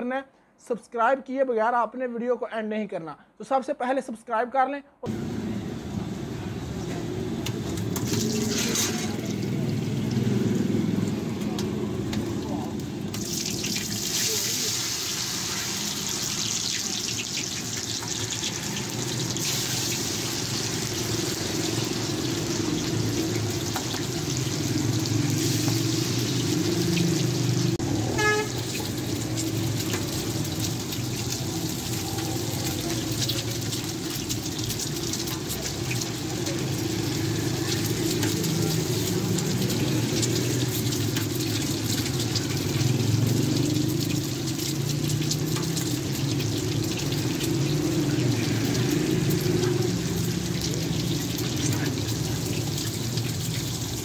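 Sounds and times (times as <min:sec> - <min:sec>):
food sizzling in oil: 0:05.2 - 0:54.0
short horn toot: 0:28.2 - 0:28.6.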